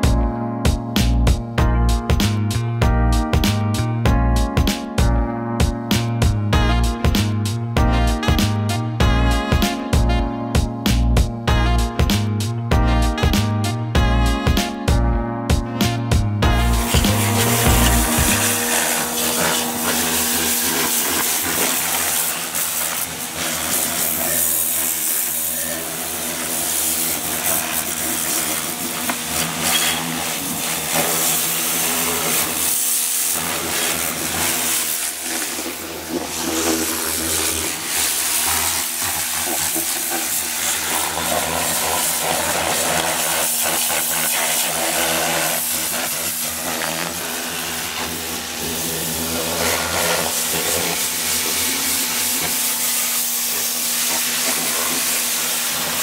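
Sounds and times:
pressure washer motor hum: 1.0 - 56.0
water jet hissing: 16.4 - 56.0.

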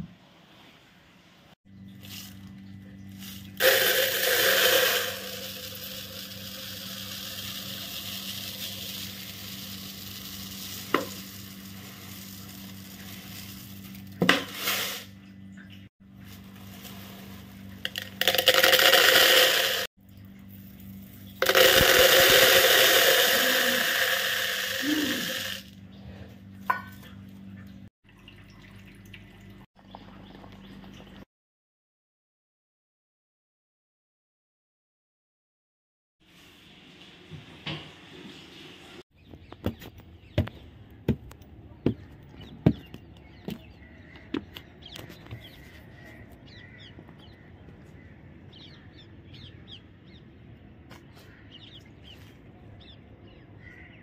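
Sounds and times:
bursts of hissing: 21.4 - 25.7.

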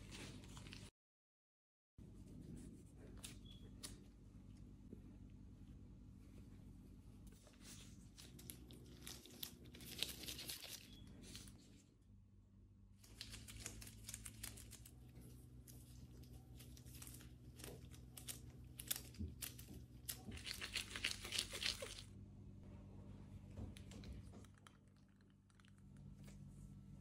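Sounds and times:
faint low hum: 2.0 - 27.0
disposable gloves crinkling: 7.7 - 11.6, 13.0 - 22.1
dough squishing and tearing: 13.0 - 22.1.

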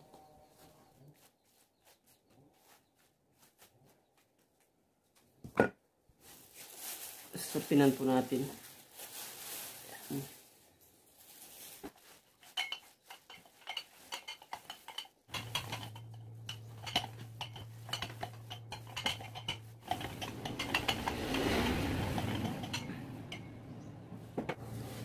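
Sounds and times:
plastic sheeting crackling: 6.2 - 13.0.

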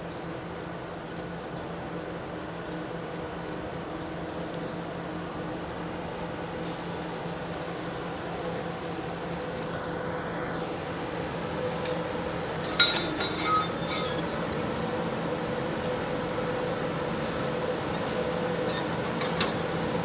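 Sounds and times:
locomotives droning on rails: 7.3 - 20.0
metallic clanks of wheels: 12.6 - 14.6, 18.0 - 19.8
ringing wheel squeals: 12.7 - 14.6, 18.6 - 19.7.

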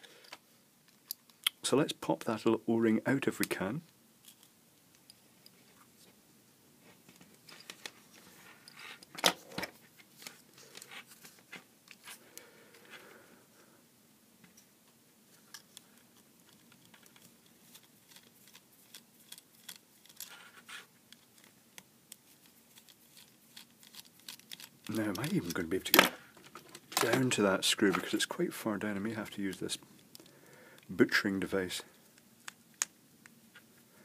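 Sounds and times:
metal tools clicking on plastic: 16.4 - 20.4, 22.7 - 25.6.

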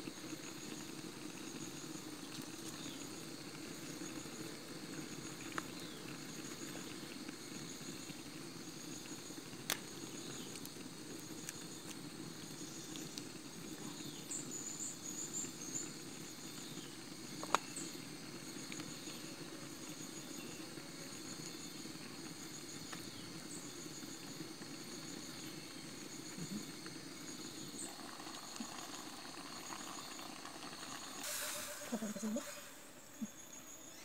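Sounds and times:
insects buzzing: 0.0 - 34.0
short high chirps: 31.2 - 33.7.

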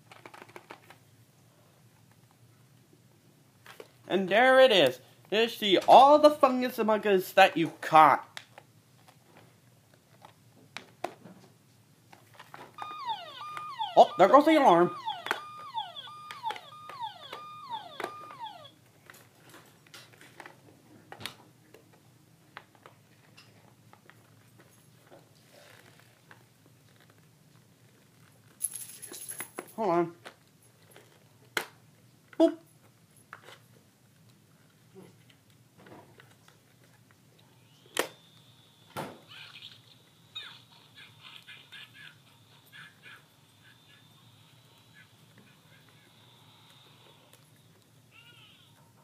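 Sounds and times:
toy electronic siren: 12.8 - 18.8, 37.6 - 40.5.

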